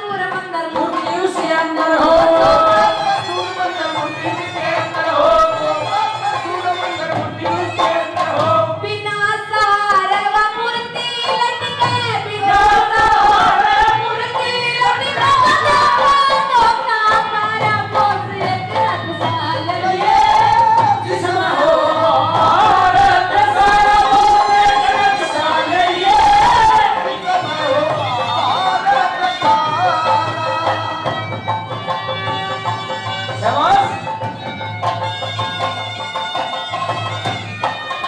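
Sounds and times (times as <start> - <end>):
woman singing into a microphone: 0.0 - 6.0, 7.3 - 27.6
backing music: 0.0 - 38.0.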